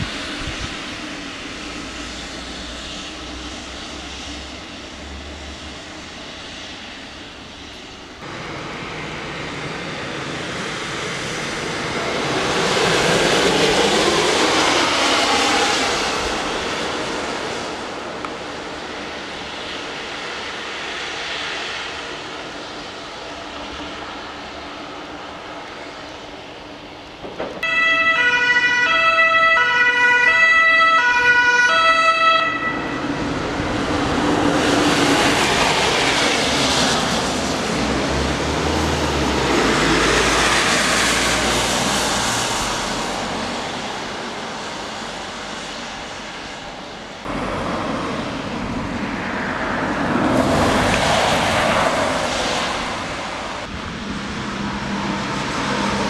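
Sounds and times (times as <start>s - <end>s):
traffic on wet street: 0.0s - 56.0s
two-tone emergency siren: 27.6s - 33.6s
large vehicle passing: 27.6s - 46.2s, 47.2s - 56.0s.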